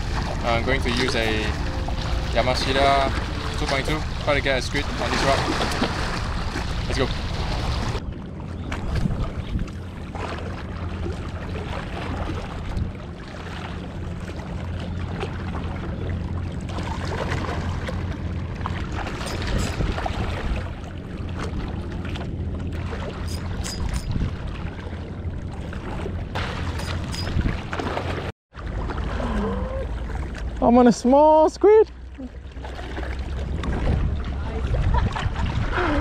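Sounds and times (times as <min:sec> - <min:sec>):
steady low rumble: 0:00.0 - 0:31.0, 0:31.9 - 0:36.0
wind noise on microphone: 0:08.7 - 0:09.8, 0:19.1 - 0:20.7, 0:23.2 - 0:24.5, 0:26.8 - 0:27.8, 0:33.4 - 0:36.0.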